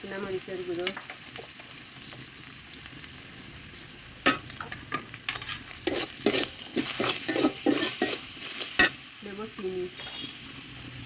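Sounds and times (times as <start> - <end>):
onions sizzling in hot oil: 0.0 - 11.0
metal spatula scraping pan: 4.3 - 9.0.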